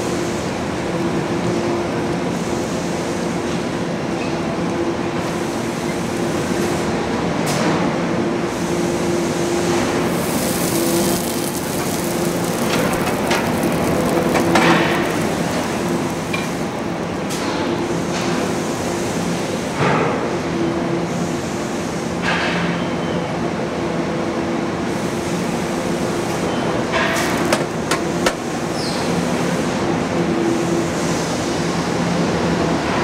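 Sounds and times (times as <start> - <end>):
mechanical rumble with hum: 9.5 - 18.4.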